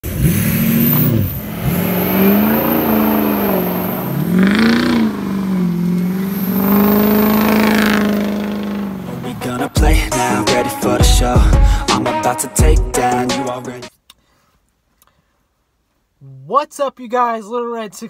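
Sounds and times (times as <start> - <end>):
diesel truck engine revving: 0.0 - 12.0.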